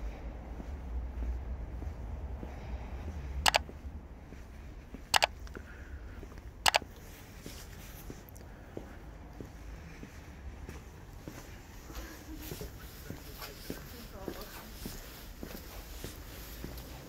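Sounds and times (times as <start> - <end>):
low steady rumble: 0.0 - 17.0
sharp double clicks: 3.4 - 3.7, 5.1 - 5.4, 6.6 - 6.8.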